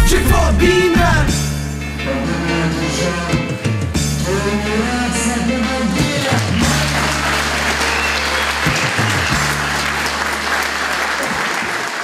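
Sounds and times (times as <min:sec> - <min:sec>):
background music with low bass: 0:00.0 - 0:11.2
audience applauding: 0:05.6 - 0:12.0.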